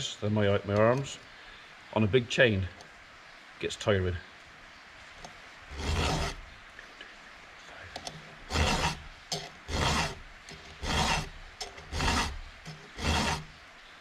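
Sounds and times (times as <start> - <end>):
file rasping on saw chain: 5.7 - 6.4, 8.1 - 13.6.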